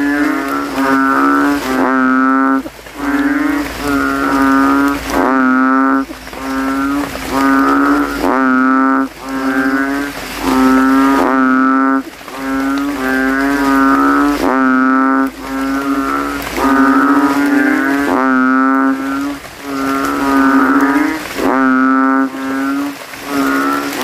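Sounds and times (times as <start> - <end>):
frogs calling in chorus: 0.0 - 24.0.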